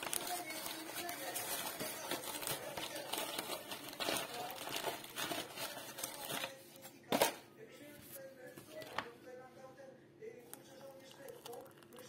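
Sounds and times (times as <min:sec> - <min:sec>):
paper crinkling and tearing: 0:00.0 - 0:07.4.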